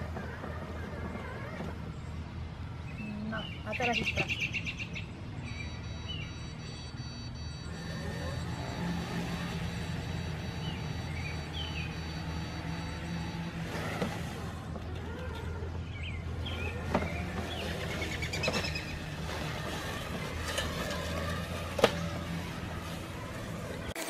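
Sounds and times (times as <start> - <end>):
mower motor hum: 0.0 - 4.0, 5.1 - 24.0
birds chirping: 0.0 - 23.9
rapid high beeps: 5.5 - 13.6.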